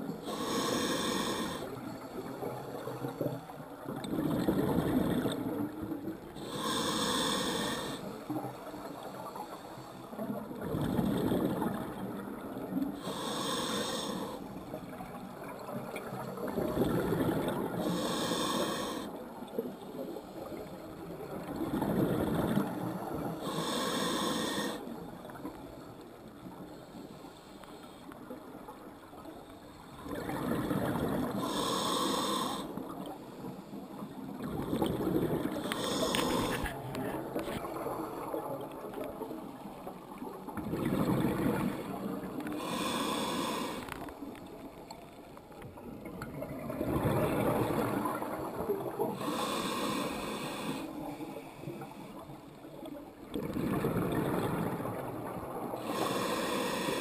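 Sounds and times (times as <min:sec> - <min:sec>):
hissing regulator inhale: 0:00.1 - 0:01.8, 0:06.4 - 0:08.3, 0:13.0 - 0:14.6, 0:17.8 - 0:19.2, 0:23.4 - 0:24.9, 0:31.3 - 0:34.1, 0:35.4 - 0:36.8, 0:42.3 - 0:44.1, 0:49.1 - 0:52.2, 0:55.8 - 0:57.0
bubbling exhale underwater: 0:53.4 - 0:56.2.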